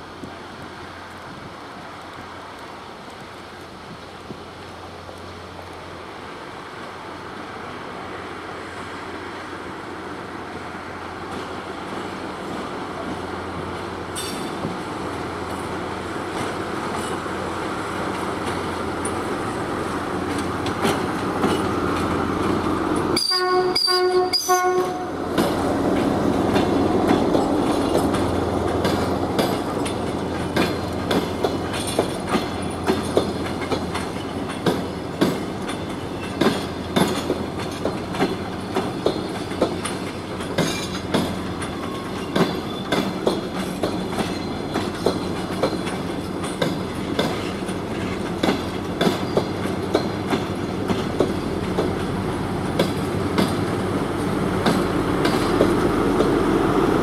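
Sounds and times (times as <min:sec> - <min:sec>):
diesel train running noise: 0:00.0 - 0:57.0
wheels clacking over rail joints: 0:11.2 - 0:57.0
train horn blasts: 0:23.2 - 0:25.2.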